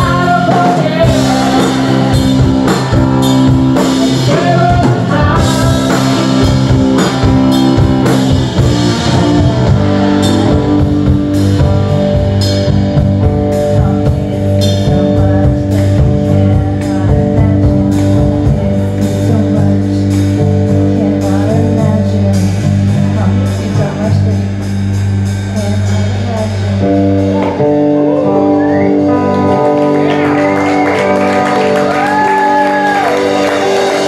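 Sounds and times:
woman singing: 0:00.0 - 0:02.9, 0:03.8 - 0:06.8, 0:13.4 - 0:24.7, 0:25.5 - 0:28.3
drum kit: 0:00.0 - 0:34.0
electric bass: 0:00.0 - 0:34.0
electric guitar: 0:00.0 - 0:34.0.

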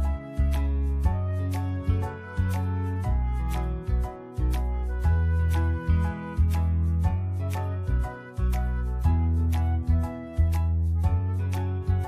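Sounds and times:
instrumental music with bass and beat: 0:00.0 - 0:12.0.

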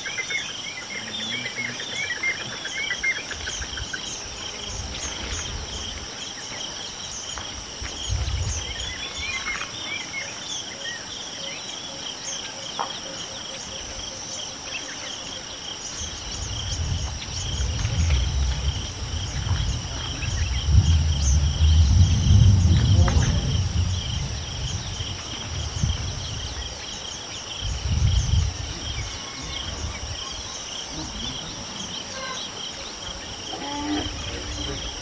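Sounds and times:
insects chorus: 0:00.0 - 0:35.0
low rumbling gusts: 0:07.6 - 0:09.3, 0:16.0 - 0:32.0.

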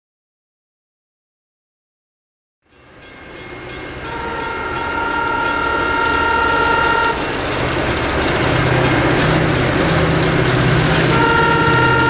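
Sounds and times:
high dinging bell: 0:02.7 - 0:12.0
locomotive engine rumble: 0:02.8 - 0:12.0
locomotive air horn blast: 0:04.0 - 0:07.5, 0:10.4 - 0:12.0.

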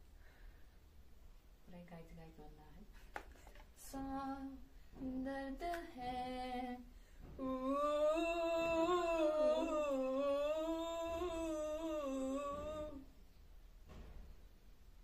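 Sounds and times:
woman humming: 0:07.4 - 0:13.1.

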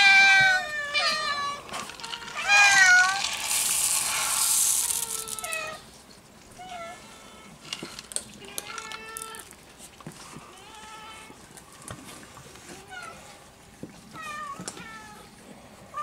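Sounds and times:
cats meowing: 0:00.0 - 0:03.2, 0:08.3 - 0:09.6, 0:14.0 - 0:16.0
hissing noise: 0:03.1 - 0:05.5.

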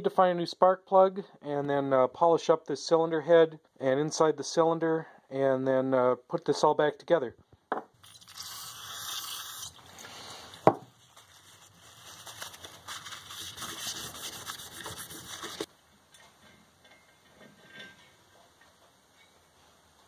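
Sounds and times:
cloth rubbing metal: 0:10.9 - 0:15.7.

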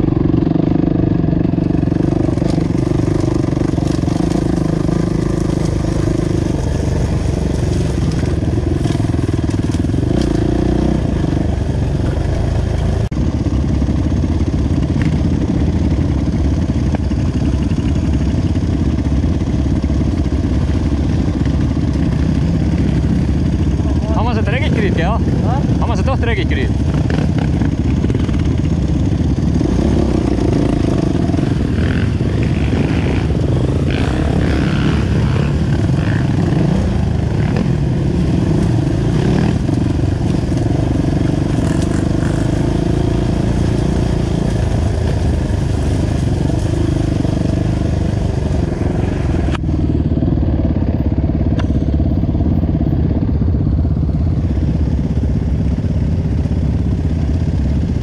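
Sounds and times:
dirt bike engine close up: 0:00.0 - 0:58.0
other dirt bike engines: 0:00.0 - 0:58.0.

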